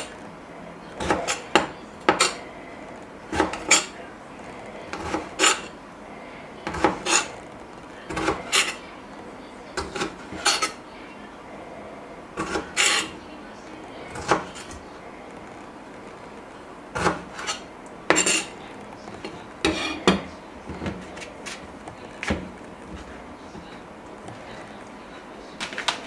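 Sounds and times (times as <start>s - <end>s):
dishes clinking and knocking: 1.0s - 2.5s, 4.9s - 5.8s, 9.8s - 10.8s, 17.0s - 24.6s.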